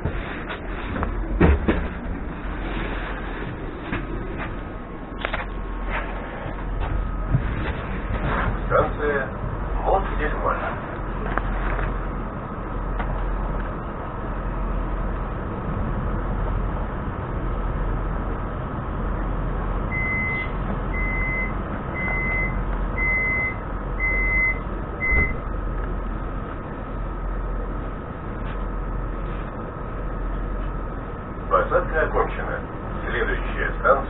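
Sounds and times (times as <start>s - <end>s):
thin equipment whine: 0.0s - 15.6s
electric train humming: 0.0s - 34.0s.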